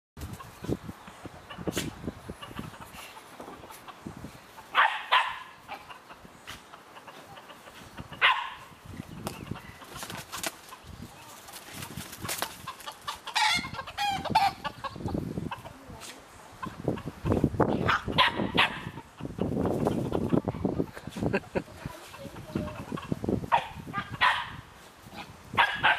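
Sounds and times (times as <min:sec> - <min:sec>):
roosters squawking and clucking: 0:00.2 - 0:25.9.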